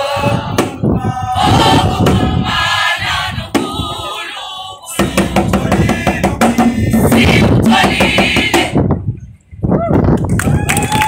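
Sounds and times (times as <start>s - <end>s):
choir singing in parts: 0.0s - 8.8s.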